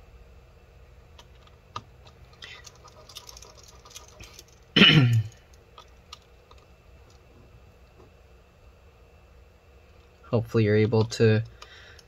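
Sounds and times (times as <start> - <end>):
screwdriver ticks and scratches: 1.2 - 7.3
person's throat noise: 4.8 - 5.4.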